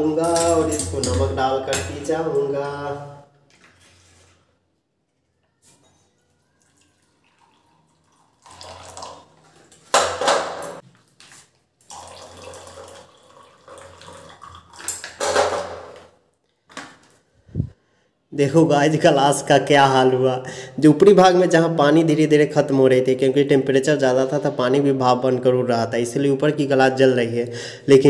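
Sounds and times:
hot water pouring and splashing: 6.6 - 10.0, 11.8 - 15.2.

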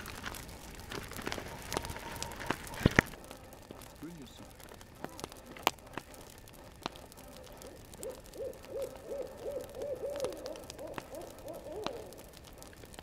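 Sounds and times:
campfire crackling: 0.0 - 13.0
owl hooting: 7.3 - 12.5.

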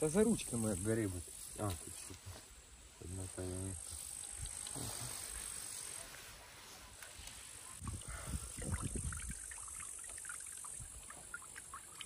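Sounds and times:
water dripping and splashing: 7.8 - 12.0.

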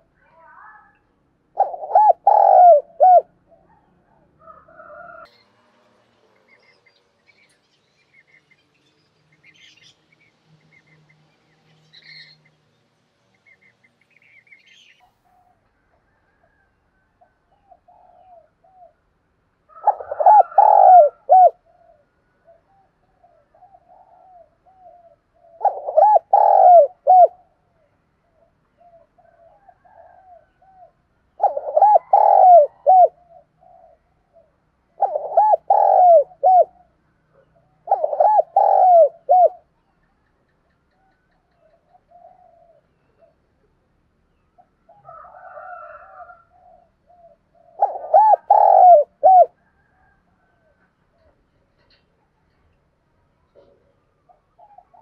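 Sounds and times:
dove cooing: 1.5 - 5.3, 15.2 - 19.1, 19.7 - 39.7, 41.0 - 43.8, 44.6 - 52.0, 53.6 - 55.0.

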